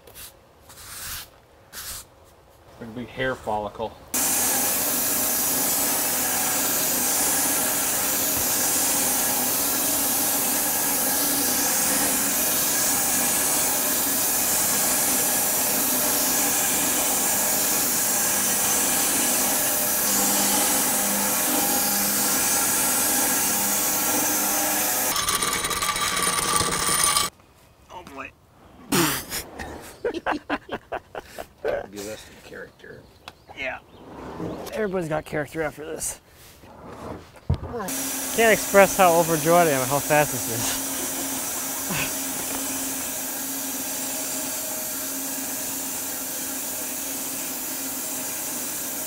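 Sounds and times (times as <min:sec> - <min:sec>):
bandsaw mill sawing log: 0:04.2 - 0:27.3, 0:37.9 - 0:49.0.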